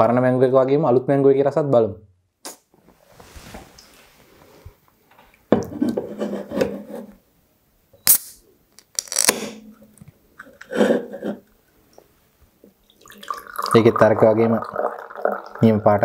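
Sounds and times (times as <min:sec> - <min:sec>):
can opening with fizzing hiss: 0:08.0 - 0:09.5.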